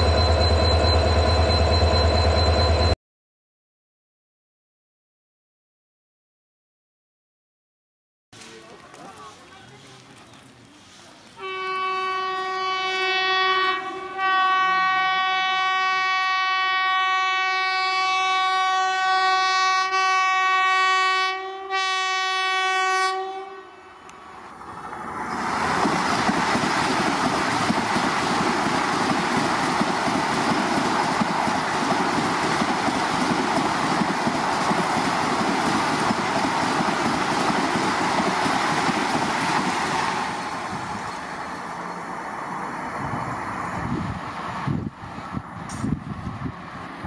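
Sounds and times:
train horn: 11.4 - 24.0
train rushing past: 24.1 - 47.0.

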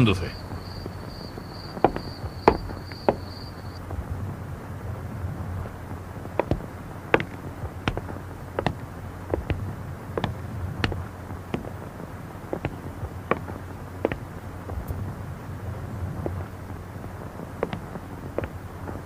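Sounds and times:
cricket chirring: 0.0 - 3.9
clicking footsteps: 0.4 - 4.0, 5.8 - 15.0, 16.2 - 19.0.

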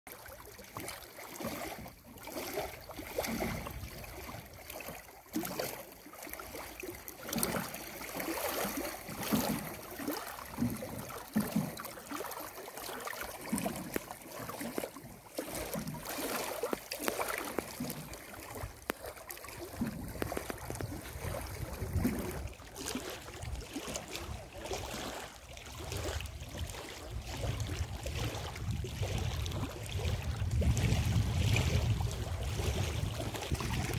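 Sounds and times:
waves lapping against rocks: 0.1 - 33.9
wind rumble on microphone: 3.0 - 4.6, 19.6 - 33.9.

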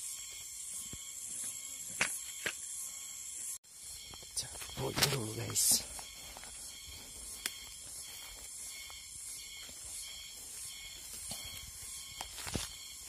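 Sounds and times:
insects chirring: 0.0 - 13.0
footsteps through dry grass: 3.8 - 13.0.

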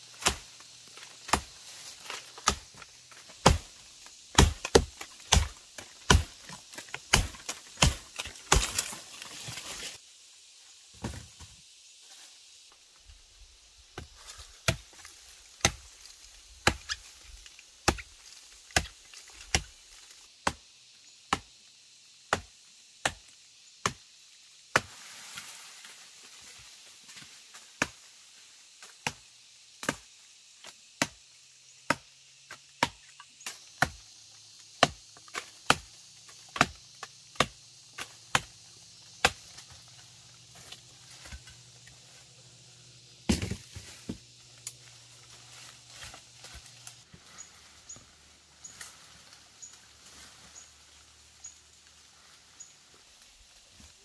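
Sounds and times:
blade chopping wood: 1.3 - 1.5, 2.1 - 2.8, 3.4 - 9.0, 15.6 - 15.9, 16.6 - 17.0, 18.7 - 19.7, 34.8 - 36.0, 36.6 - 36.8, 37.4 - 38.5, 43.3 - 44.8.

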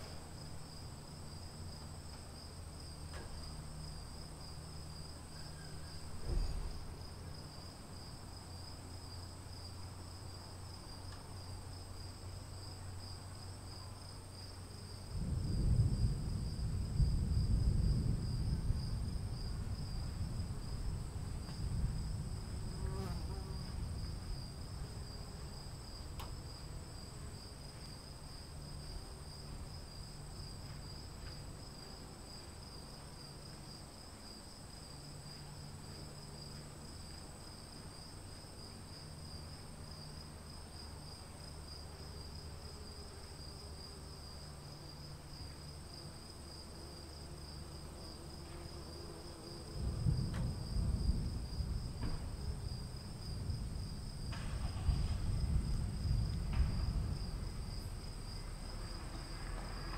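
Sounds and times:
faint low rumble: 0.0 - 34.2, 49.5 - 59.9
high insect chorus trilling: 0.0 - 59.9
distant thunder rumble: 15.0 - 25.2, 49.6 - 59.9.

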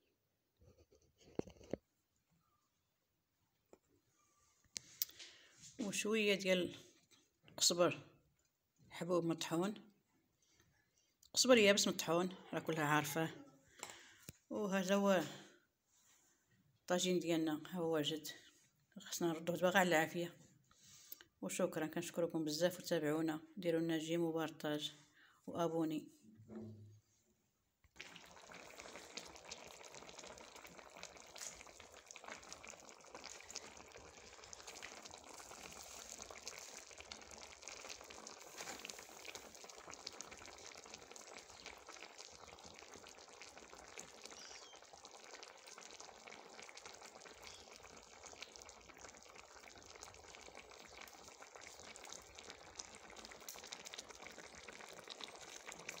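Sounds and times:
sauce bubbling and sizzling: 27.9 - 56.0.

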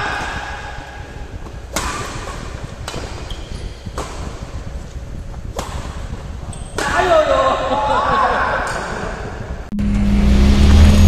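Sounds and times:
steady low hum: 0.0 - 11.0
rackets hitting shuttlecock: 1.4 - 4.7, 5.4 - 7.2.

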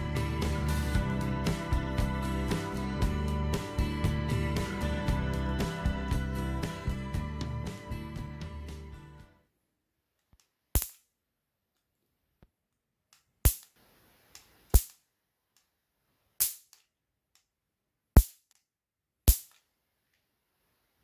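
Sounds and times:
electric mosquito racket snaps: 13.5 - 13.8, 14.4 - 15.0, 19.3 - 19.6.

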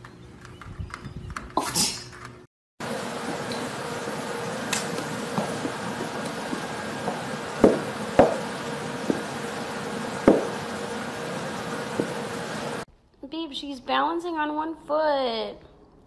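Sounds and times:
steady hiss: 2.8 - 12.9.

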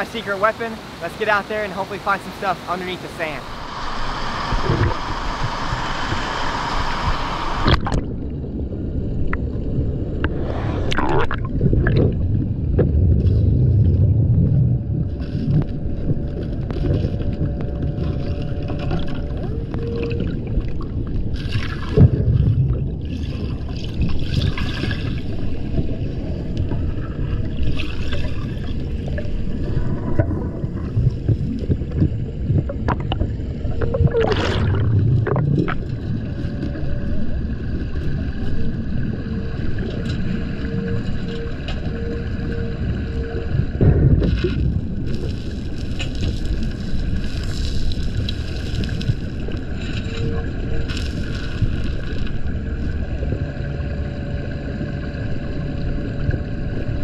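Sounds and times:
muffled underwater water rumble: 2.0 - 57.0
louder water bursts: 10.2 - 12.4, 33.9 - 35.9.

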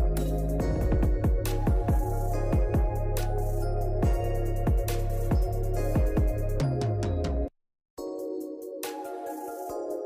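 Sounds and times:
kick drum beat: 0.0 - 3.1, 4.0 - 6.6.

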